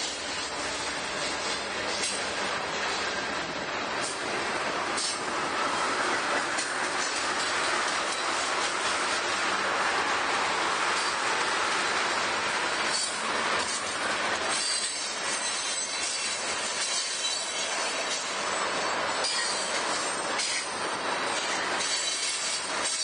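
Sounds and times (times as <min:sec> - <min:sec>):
train cars clanking: 0:00.0 - 0:23.0
train cars rumbling on rails: 0:00.0 - 0:23.0
high wheel squeal: 0:12.9 - 0:13.9, 0:14.5 - 0:23.0.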